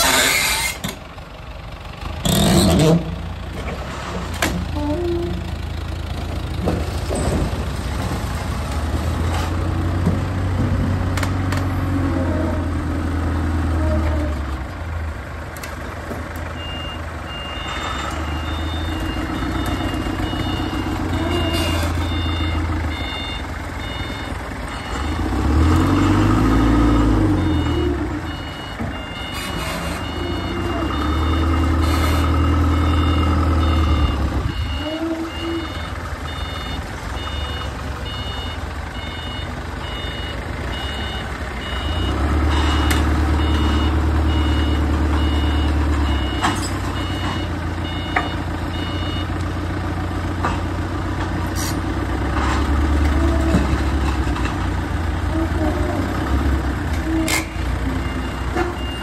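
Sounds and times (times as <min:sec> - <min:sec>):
heavy vehicle engine revving: 0:02.0 - 0:15.0, 0:16.6 - 0:59.0
reversing alarm beeping: 0:16.6 - 0:49.4, 0:57.1 - 0:59.0.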